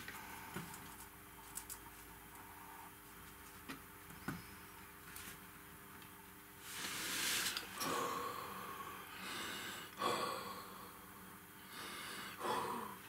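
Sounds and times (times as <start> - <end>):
person huffing breath: 7.0 - 11.0, 11.7 - 13.0.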